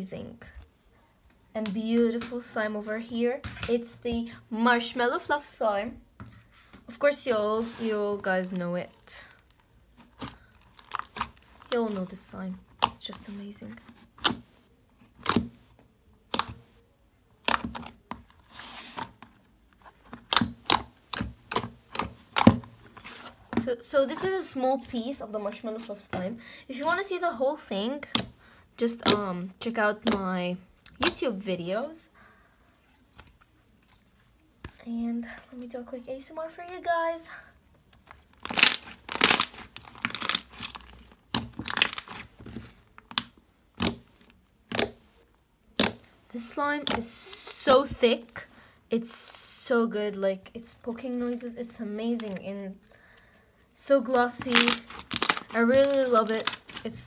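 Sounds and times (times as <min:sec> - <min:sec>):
slime squishing and crackling: 0:07.6 - 0:15.6, 0:16.2 - 0:16.7, 0:17.4 - 0:26.2, 0:28.0 - 0:29.3, 0:37.9 - 0:45.1, 0:45.7 - 0:48.5, 0:53.8 - 0:57.0
slime popping and clicking: 0:16.3 - 0:16.6, 0:43.1 - 0:44.1, 0:44.7 - 0:45.0.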